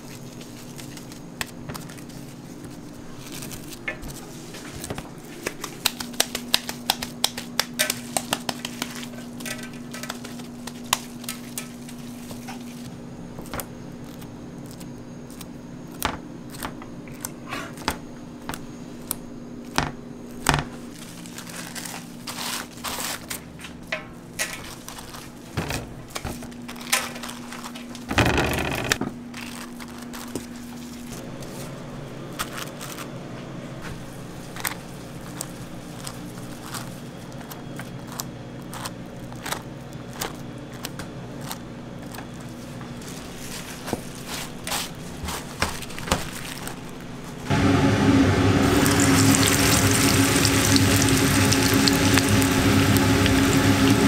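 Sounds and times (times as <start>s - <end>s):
wrapping sheets crinkling: 0.0s - 17.9s, 19.7s - 47.5s, 48.7s - 54.0s
steady low hum: 46.7s - 54.0s.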